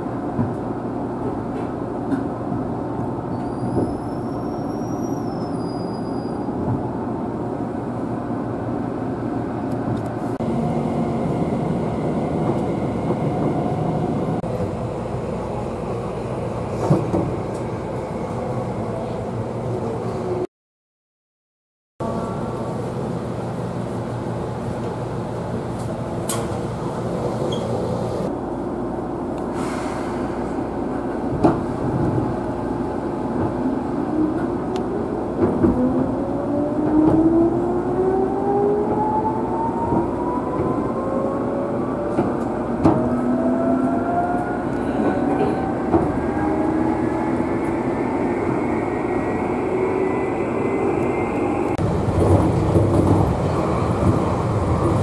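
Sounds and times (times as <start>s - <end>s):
train standing hum: 22.0s - 55.0s.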